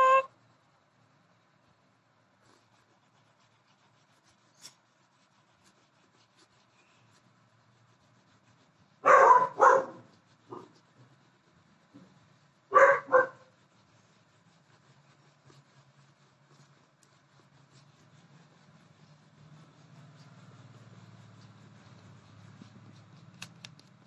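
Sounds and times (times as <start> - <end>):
dog barking: 9.0 - 10.7, 12.7 - 13.5.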